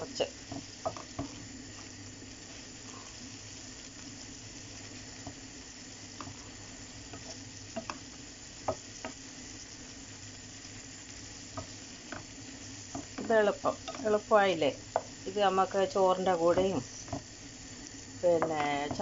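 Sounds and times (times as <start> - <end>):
vegetables sizzling in a frying pan: 0.0 - 19.0
spatula scraping a pan: 0.4 - 9.6.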